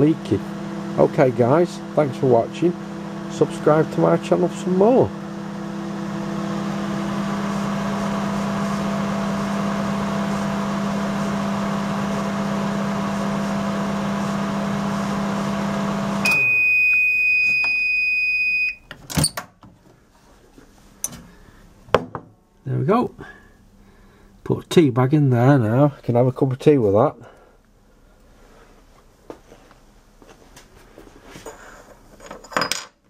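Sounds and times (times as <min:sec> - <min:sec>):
microwave oven humming: 0:00.0 - 0:19.3
long steady beep: 0:16.2 - 0:18.8.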